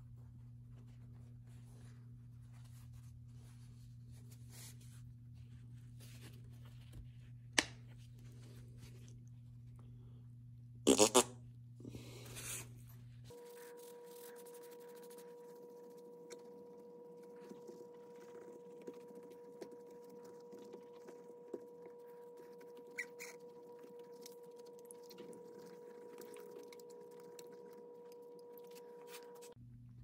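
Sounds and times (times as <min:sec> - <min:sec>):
low electrical hum: 0:00.0 - 0:30.0
squeeze bottle sputtering: 0:10.9 - 0:11.3
cloth rubbing on guitar: 0:12.3 - 0:16.3.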